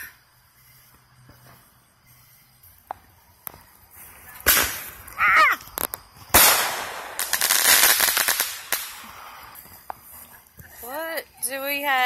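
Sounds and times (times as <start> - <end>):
fireworks crackling: 2.7 - 12.0
fireworks bangs: 4.3 - 9.6.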